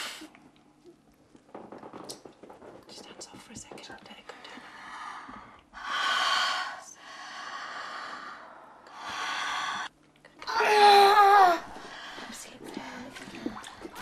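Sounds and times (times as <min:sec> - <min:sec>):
woman breathing heavily: 0:04.3 - 0:09.9, 0:11.4 - 0:14.0.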